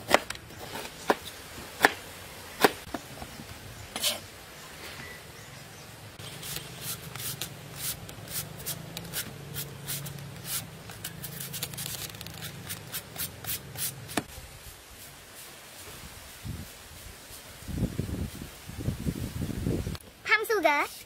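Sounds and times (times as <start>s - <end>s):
knife scraping mango skin: 6.2s - 14.3s.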